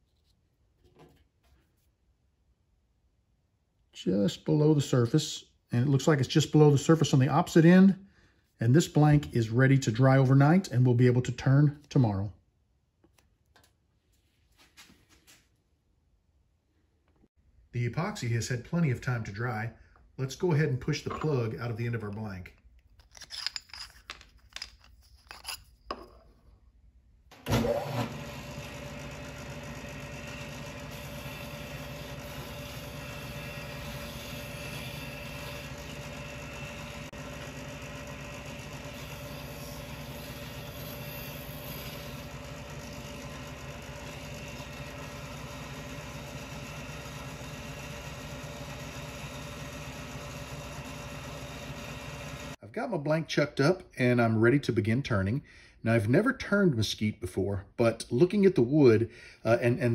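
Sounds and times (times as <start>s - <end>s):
disc sander running: 27.4s - 52.6s.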